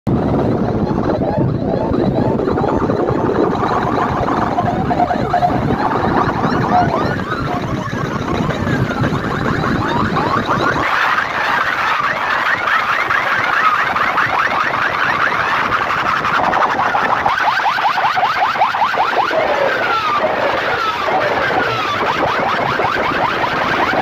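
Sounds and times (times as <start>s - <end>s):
heavy low bass: 0.1s - 11.4s
siren-like sweeping tones: 0.1s - 24.0s.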